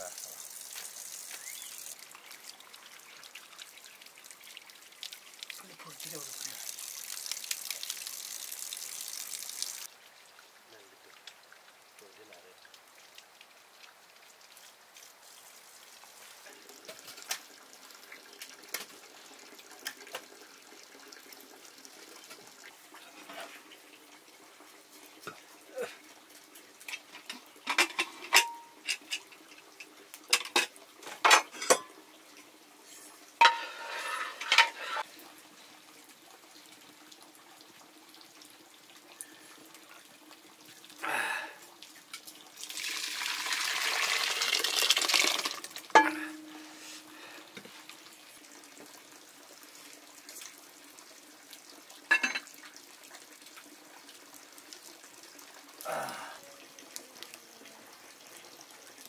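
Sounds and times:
water pouring: 0:00.0 - 0:59.0
metal pots clinking: 0:26.9 - 0:32.0, 0:32.9 - 0:35.0, 0:45.5 - 0:47.2, 0:52.1 - 0:52.6.

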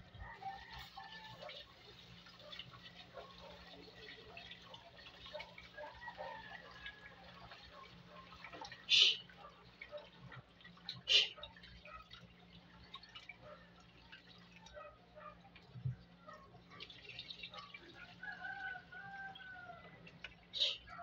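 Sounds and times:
faint drawn-out call: 0:08.8 - 0:09.5, 0:11.0 - 0:11.4, 0:20.5 - 0:21.0.

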